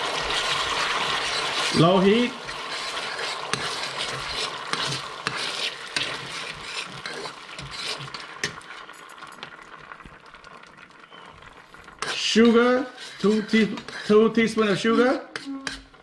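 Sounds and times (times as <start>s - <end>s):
spoon scraping a metal pan: 0.3s - 8.6s, 12.0s - 16.0s.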